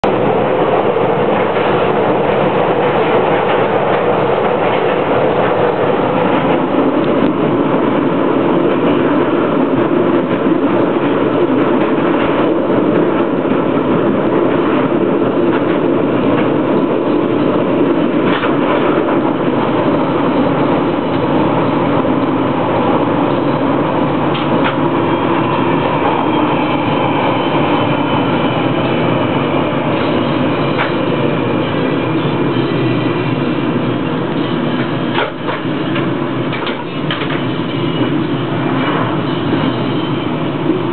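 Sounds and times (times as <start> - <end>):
train rumbling through tunnel: 0.0 - 40.9
wheels clicking on track: 30.8 - 39.8.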